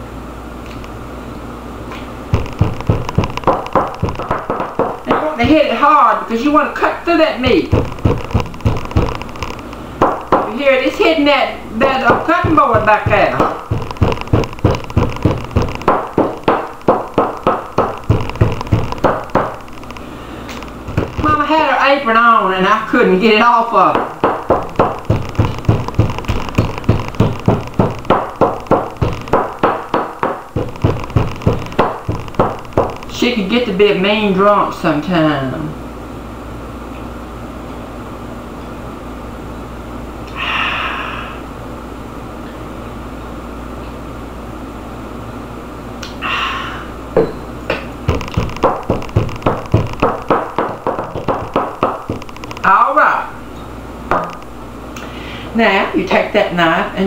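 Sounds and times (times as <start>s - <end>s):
glass bottle pounding steak on board: 2.3s - 5.2s, 7.7s - 10.5s, 12.0s - 19.7s, 24.0s - 33.1s, 48.1s - 52.6s.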